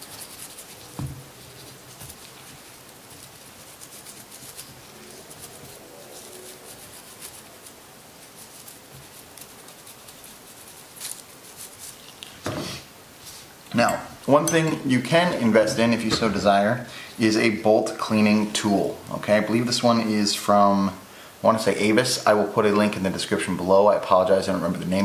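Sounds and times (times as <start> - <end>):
toothbrush scrubbing metal: 0.0 - 12.3.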